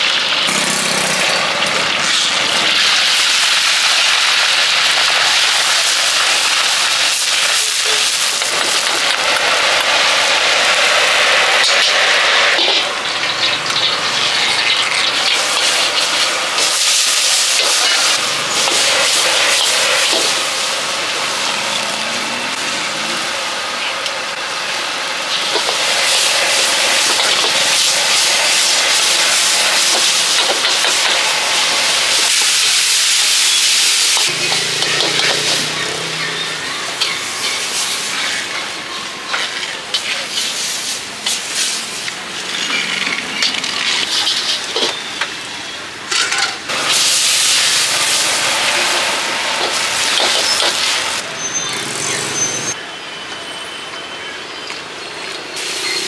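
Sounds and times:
food sizzling in a wok: 0.0 - 53.1, 54.2 - 56.0
metal spatula scraping a wok: 34.2 - 38.6, 39.2 - 45.2.

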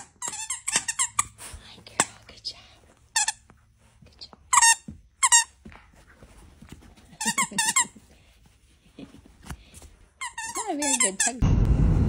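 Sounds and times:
dog toy squeaker squeaking: 0.0 - 1.4, 10.2 - 11.4.

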